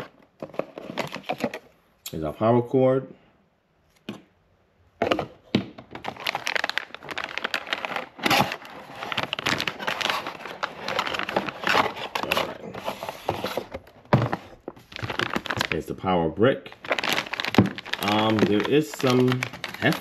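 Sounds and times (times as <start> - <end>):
plastic bag crinkling: 0.0 - 1.7, 5.0 - 20.0.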